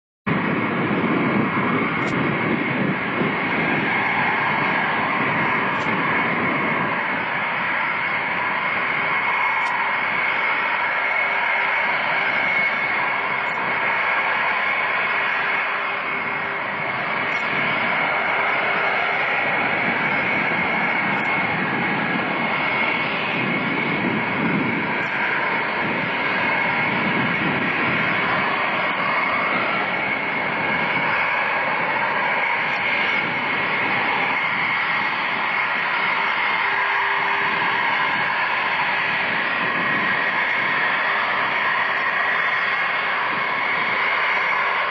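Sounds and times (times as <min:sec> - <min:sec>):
high engine whine: 0:00.3 - 0:44.9
jet engines running: 0:00.3 - 0:44.9.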